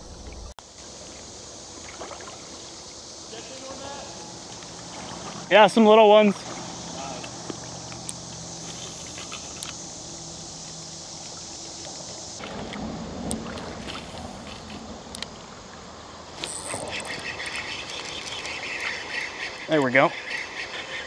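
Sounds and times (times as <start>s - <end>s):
insects chirping: 0.0s - 21.0s
high even hiss: 0.6s - 12.4s
water hissing: 0.7s - 21.0s.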